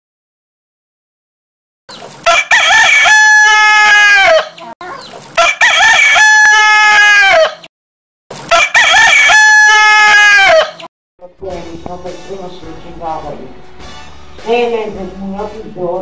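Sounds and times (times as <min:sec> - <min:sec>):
rooster crowing: 0:02.2 - 0:04.6, 0:05.4 - 0:07.7, 0:08.5 - 0:10.9.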